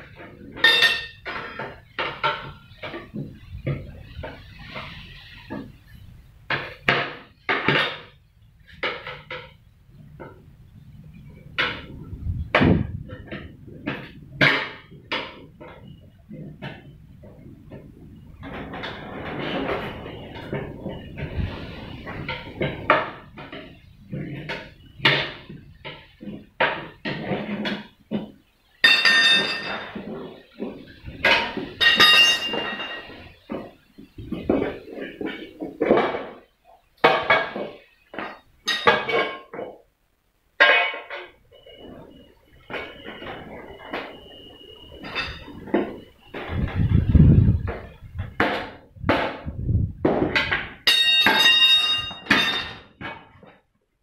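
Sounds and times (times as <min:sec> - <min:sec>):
wheel knocks: 0:00.0 - 0:39.9, 0:40.6 - 0:53.7
ringing metal clang: 0:00.6 - 0:01.3, 0:28.8 - 0:30.0, 0:31.2 - 0:33.2, 0:44.9 - 0:46.0, 0:50.8 - 0:53.0.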